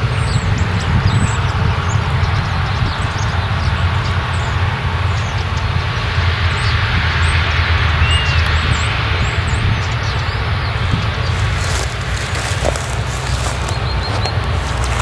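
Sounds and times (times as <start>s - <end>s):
low engine drone: 0.0s - 15.0s
threshing and chopping rush: 11.3s - 15.0s.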